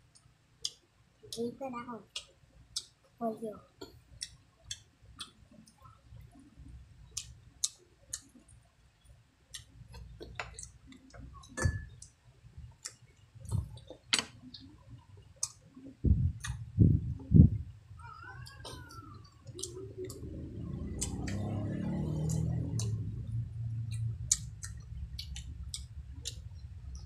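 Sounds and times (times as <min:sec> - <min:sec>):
people chewing with lip smacks: 0:02.1 - 0:03.0, 0:03.8 - 0:08.6, 0:12.7 - 0:17.4, 0:18.0 - 0:27.0.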